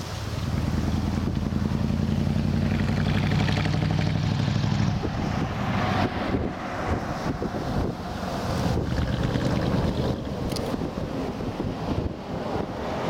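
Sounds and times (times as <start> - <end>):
wind noise on microphone: 0.0 - 13.0
jet engines droning overhead: 4.9 - 13.0.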